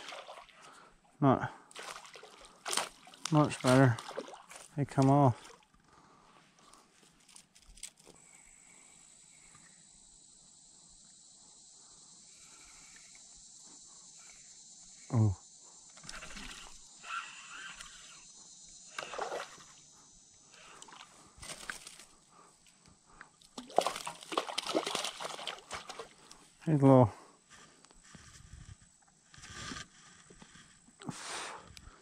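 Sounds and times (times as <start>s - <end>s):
fish splashing at the surface: 0.0s - 0.6s, 1.7s - 4.6s, 18.9s - 19.6s, 23.6s - 26.2s
faint high hiss: 8.1s - 28.1s.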